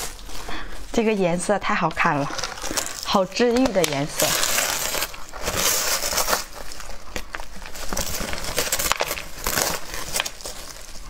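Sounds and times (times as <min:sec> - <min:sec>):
plastic film crinkling: 0:00.0 - 0:11.0.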